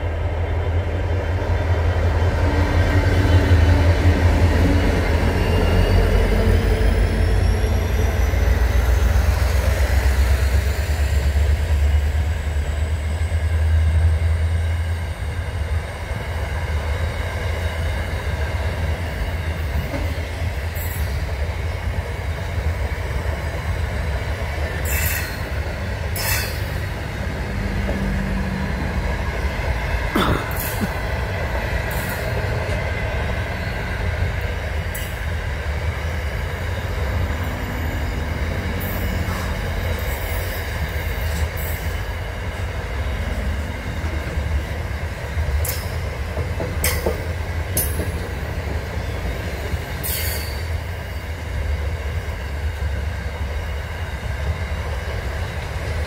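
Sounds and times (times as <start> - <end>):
freight train wagons rumbling: 0.0 - 56.0
train wagons clanking: 17.5 - 52.4.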